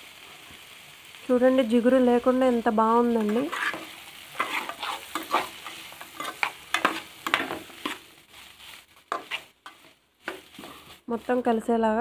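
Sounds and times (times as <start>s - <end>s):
faint sizzle: 0.0s - 12.0s
metal spoon scraping a pan: 3.1s - 11.0s.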